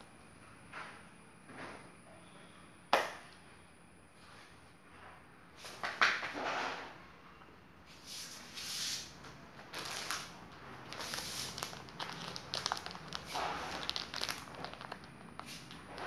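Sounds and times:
plastic bag crinkling: 0:09.6 - 0:16.0.

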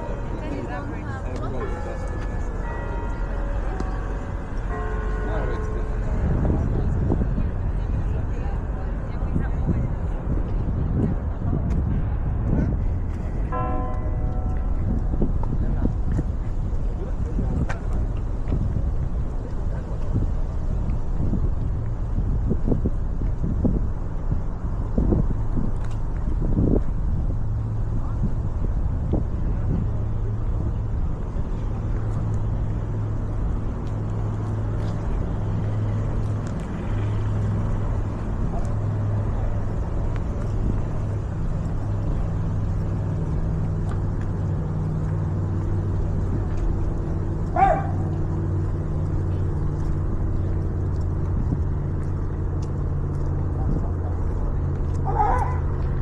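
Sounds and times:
engine drone: 0:28.8 - 0:56.0.

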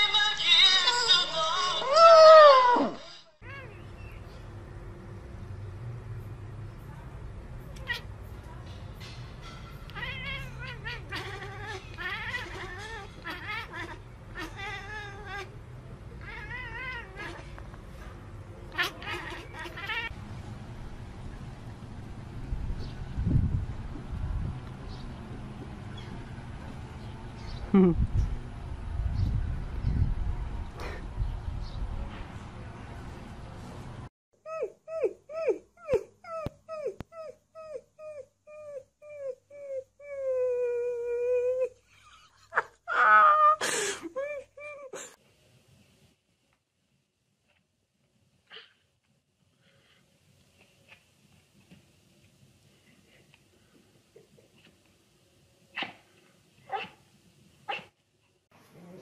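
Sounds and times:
cat meowing: 0:09.9 - 0:15.6, 0:16.2 - 0:17.6, 0:18.7 - 0:20.1
puppy crying: 0:34.5 - 0:45.0.

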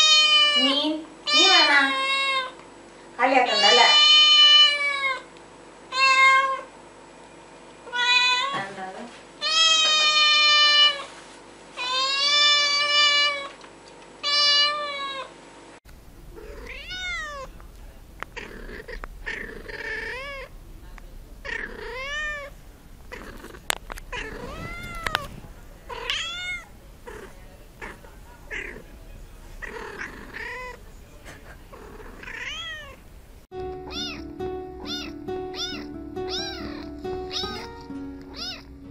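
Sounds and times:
cat long meows: 0:16.4 - 0:17.5, 0:18.4 - 0:20.5, 0:21.4 - 0:22.5, 0:23.1 - 0:25.3, 0:25.9 - 0:28.8, 0:31.9 - 0:33.0, 0:33.9 - 0:37.7, 0:38.3 - 0:38.7.

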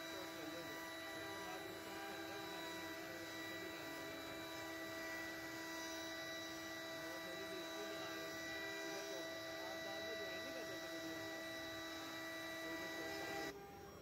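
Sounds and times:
wood router spindle whining: 0:00.0 - 0:14.0.

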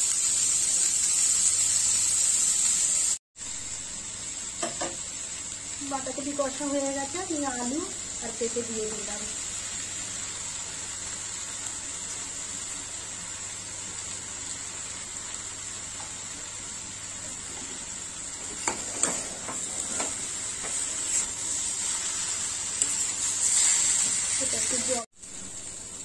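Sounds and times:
vegetables sizzling in a pan: 0:00.0 - 0:26.0
metal spatula scraping a pan: 0:18.5 - 0:24.8.

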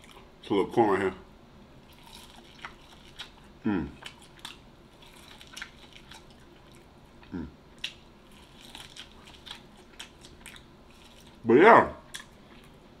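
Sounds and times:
person chewing food: 0:00.0 - 0:00.3, 0:01.8 - 0:11.4, 0:12.0 - 0:13.0
short falling voice hum: 0:03.6 - 0:04.0, 0:07.3 - 0:07.6.

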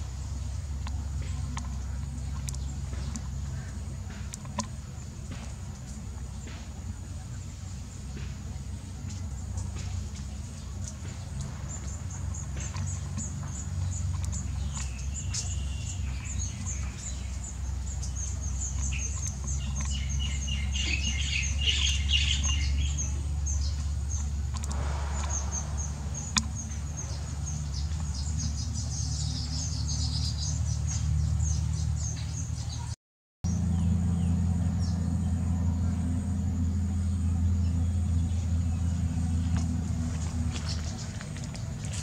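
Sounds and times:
steady low rumble: 0:00.0 - 0:42.0
birds chirping in quick high twitters: 0:10.6 - 0:32.9.

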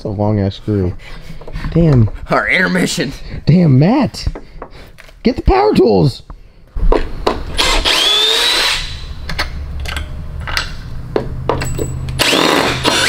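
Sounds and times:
cordless drill motor whine: 0:07.6 - 0:09.0.

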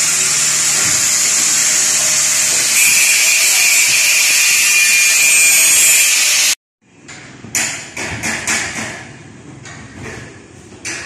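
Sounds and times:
loud steady hiss: 0:00.0 - 0:06.6
hammer knocks in concrete hall: 0:07.4 - 0:09.2.

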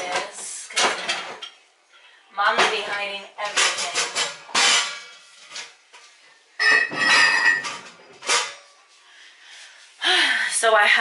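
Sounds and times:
kitchenware clattering: 0:00.0 - 0:01.7, 0:02.4 - 0:08.8.

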